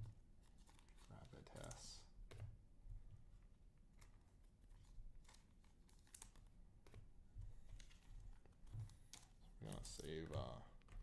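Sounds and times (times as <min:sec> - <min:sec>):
trading cards clicking and tapping: 0:00.0 - 0:02.6, 0:05.2 - 0:11.0.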